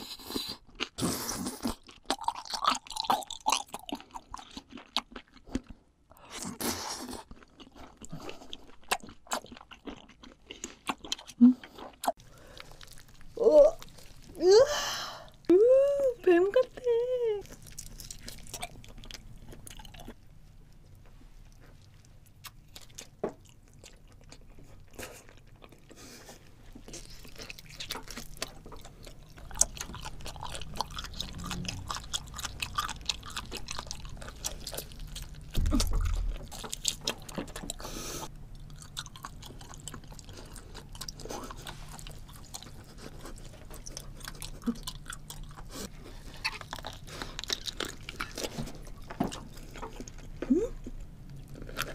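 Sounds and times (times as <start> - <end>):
person chewing: 0.0 - 14.4, 17.4 - 51.9
low thump: 31.2 - 32.5, 35.5 - 36.8.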